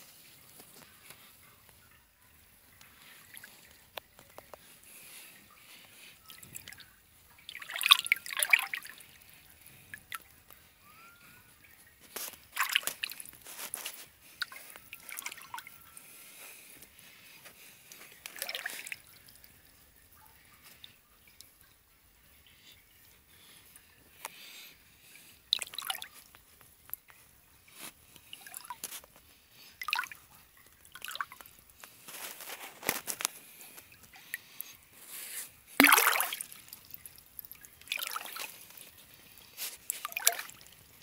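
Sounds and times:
water dripping: 0.0s - 41.0s
hand splashing in water: 35.8s - 36.8s.

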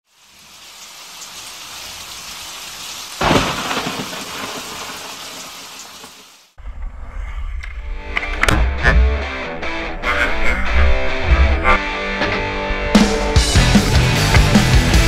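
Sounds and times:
rain hiss: 0.0s - 6.6s
loud thunder crack: 3.2s - 5.5s.

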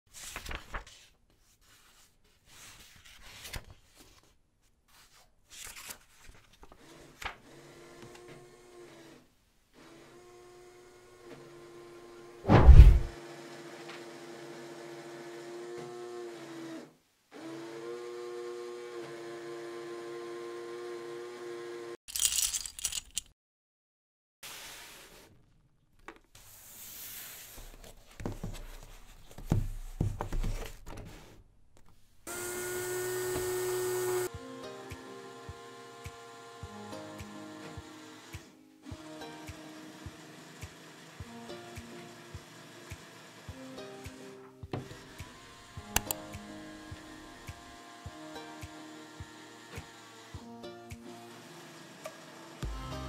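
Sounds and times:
page turning rustle: 0.1s - 7.4s
loud thump: 12.5s - 13.2s
electric motors whirring: 32.3s - 34.4s, 39.7s - 41.2s
plastic clicks: 46.0s - 46.2s.

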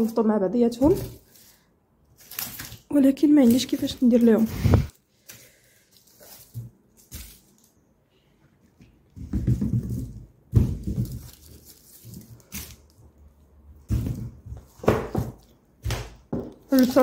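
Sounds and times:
handling rustles: 3.4s - 7.8s, 8.5s - 15.5s
potatoes knocking on plastic rack: 9.2s - 11.4s.

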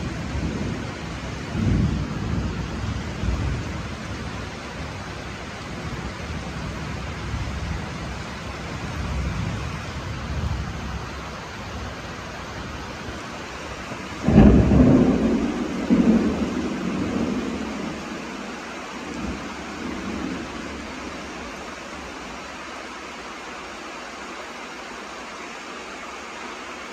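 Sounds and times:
loud thunder crack: 0.0s - 4.4s, 14.1s - 21.0s
low thunder rumbling: 0.0s - 22.4s
heavy rain: 0.0s - 26.9s.

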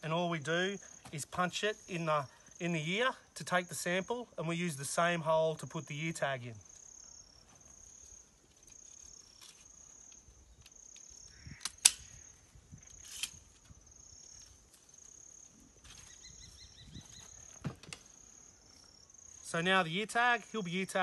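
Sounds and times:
insects chirping: 0.0s - 21.0s
sampling gun snapping shut: 11.6s - 12.2s.

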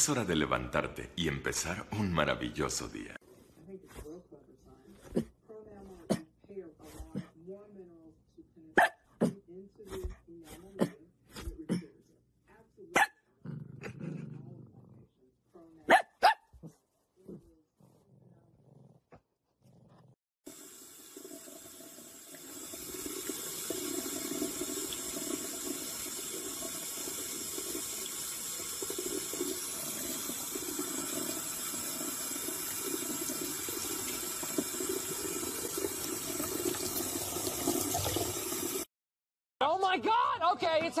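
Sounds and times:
faucet water splashing into mug: 20.5s - 38.9s.

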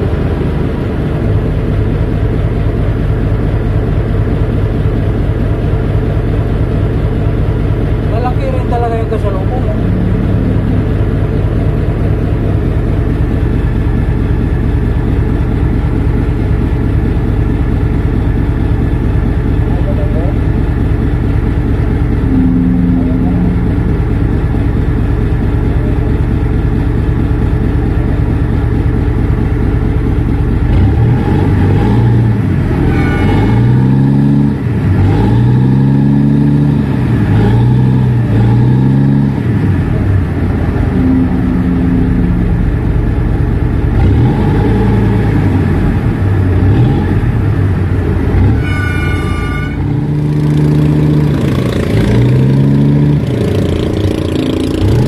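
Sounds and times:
boat engine rumbling: 0.0s - 55.0s
short high tone: 22.1s - 24.7s, 40.8s - 42.8s, 48.6s - 50.0s.

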